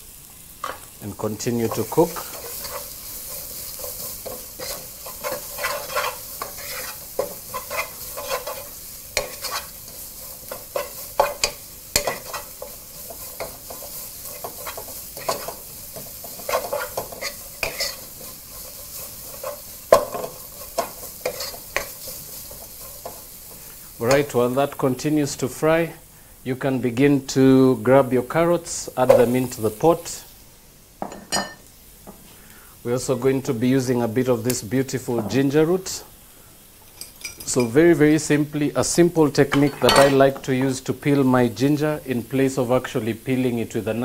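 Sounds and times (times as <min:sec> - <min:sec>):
onions sizzling in oil: 0:00.0 - 0:44.0
wooden spoon scraping pot: 0:01.6 - 0:23.2.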